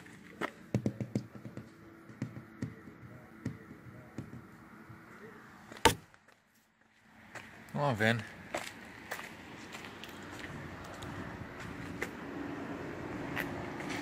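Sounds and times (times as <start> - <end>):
fingertip tapping on window glass: 0.7 - 4.5.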